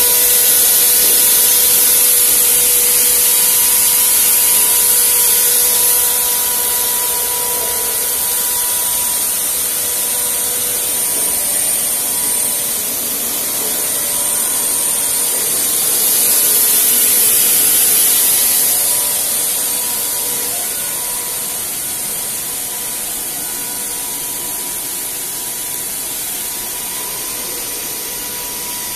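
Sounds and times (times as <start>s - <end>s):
knitting machine hissing: 0.0s - 22.5s.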